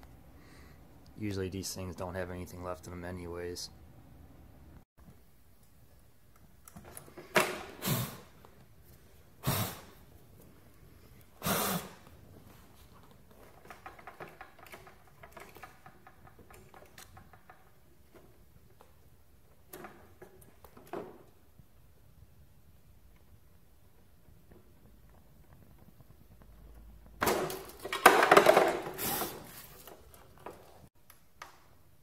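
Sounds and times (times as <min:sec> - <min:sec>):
torch flame hissing: 0:07.8 - 0:08.4, 0:09.4 - 0:10.1, 0:11.4 - 0:12.1.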